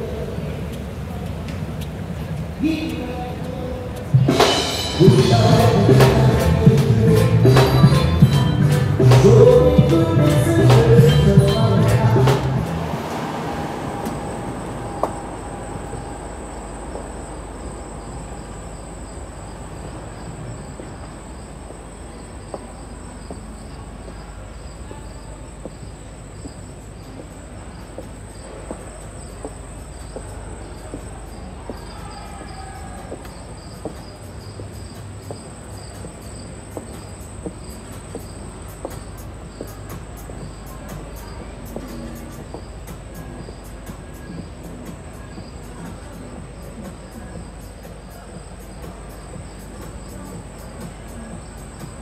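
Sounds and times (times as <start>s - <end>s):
low steady hum: 0.0s - 31.7s
cricket chirping: 4.0s - 52.0s.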